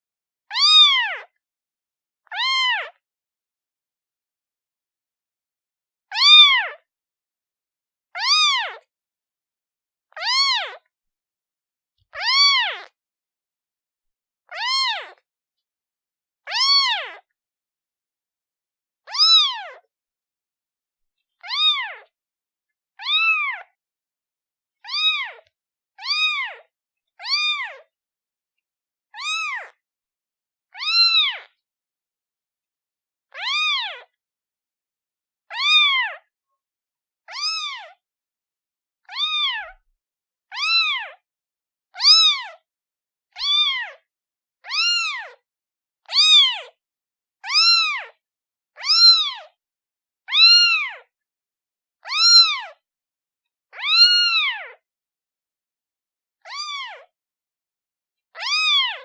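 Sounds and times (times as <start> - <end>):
kitten meowing: 0.5 - 1.3, 2.3 - 3.0, 6.1 - 6.8, 8.2 - 8.8, 10.1 - 10.8, 12.2 - 12.9, 14.5 - 15.2, 16.5 - 17.2, 19.1 - 19.9, 21.4 - 22.1, 23.0 - 23.7, 24.8 - 26.6, 27.2 - 27.9, 29.2 - 29.8, 30.8 - 31.5, 33.3 - 34.2, 35.5 - 36.3, 37.3 - 38.0, 39.0 - 39.8, 40.5 - 41.2, 42.0 - 42.6, 43.4 - 44.0, 44.6 - 45.4, 46.1 - 46.7, 47.4 - 48.2, 48.8 - 49.5, 50.3 - 51.1, 52.0 - 52.8, 53.7 - 54.8, 56.5 - 57.1, 58.4 - 59.0.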